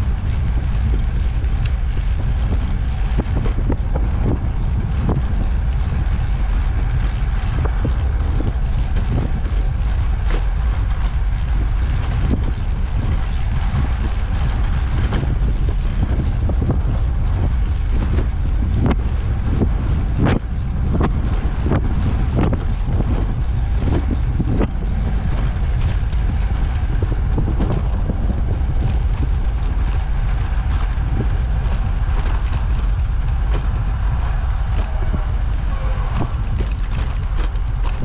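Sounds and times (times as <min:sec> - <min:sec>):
tyres rolling on asphalt: 0:00.0 - 0:38.0
wind buffeting microphone: 0:00.0 - 0:38.0
small clicks and rattles: 0:36.2 - 0:38.0.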